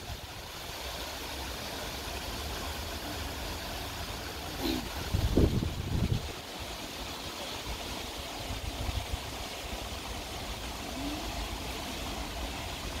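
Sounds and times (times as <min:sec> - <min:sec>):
outdoor background hiss: 0:00.0 - 0:13.0
wind rumbling on microphone: 0:04.9 - 0:06.5.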